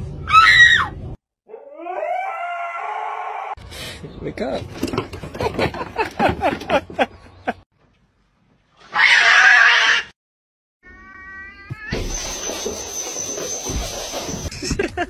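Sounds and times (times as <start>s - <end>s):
cat yowling: 1.5s - 3.6s.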